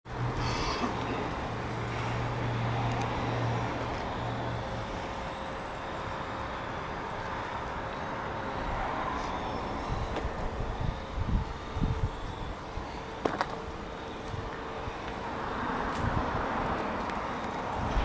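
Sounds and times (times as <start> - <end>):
vehicle engine humming: 0.0 - 18.0.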